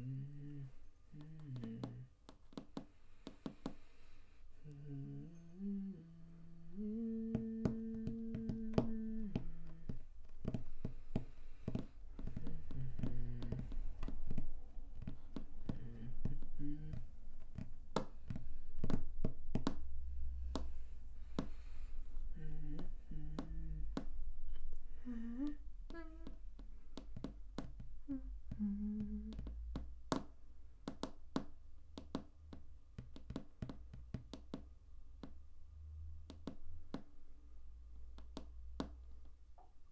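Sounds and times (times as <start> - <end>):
person humming: 0.0 - 2.2, 4.5 - 17.7, 20.4 - 29.9.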